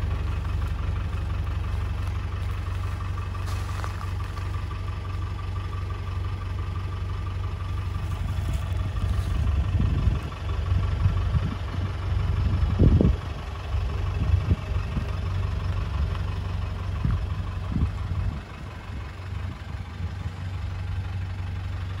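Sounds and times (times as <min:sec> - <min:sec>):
engine idling low throb: 0:00.0 - 0:22.0.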